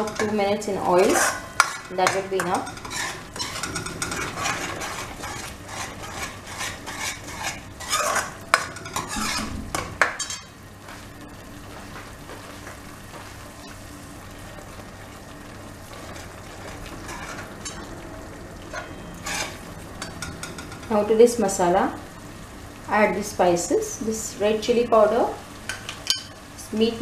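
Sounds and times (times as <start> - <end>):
metal spoon scraping metal pan: 0.0 - 9.6, 18.7 - 20.9
paste sizzling in hot oil: 0.0 - 10.6.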